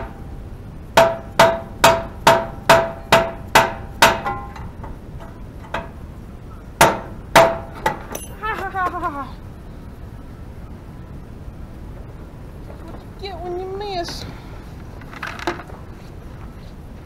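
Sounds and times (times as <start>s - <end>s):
hammer striking metal: 1.0s - 4.7s, 6.8s - 8.4s.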